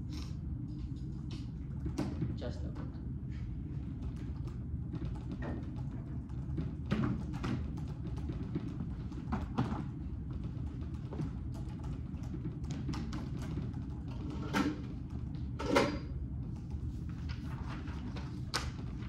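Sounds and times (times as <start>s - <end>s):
low room hum: 0.0s - 19.0s.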